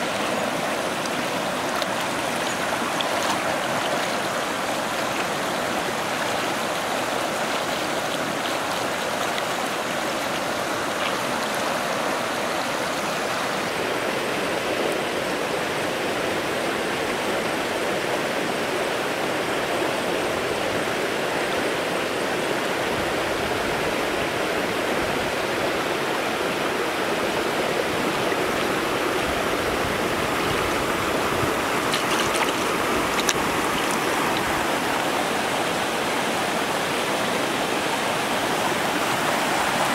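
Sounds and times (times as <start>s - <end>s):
water splashes: 0.0s - 14.6s, 23.6s - 39.9s
stream water rushing: 0.0s - 39.9s.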